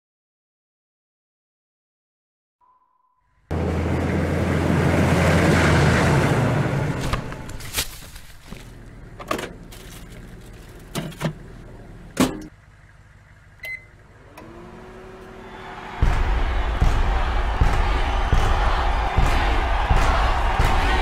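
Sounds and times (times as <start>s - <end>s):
loud rush of noise: 15.4s - 21.0s.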